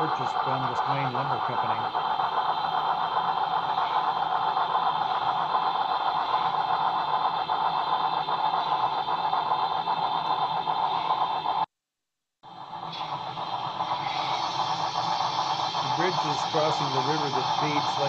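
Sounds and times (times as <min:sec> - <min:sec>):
model train rattling: 0:00.0 - 0:11.6, 0:12.6 - 0:18.0.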